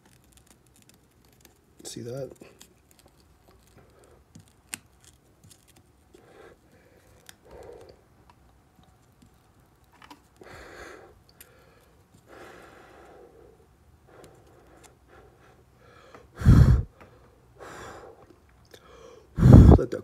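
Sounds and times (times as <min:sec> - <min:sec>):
soft rustling: 0:00.0 - 0:10.4.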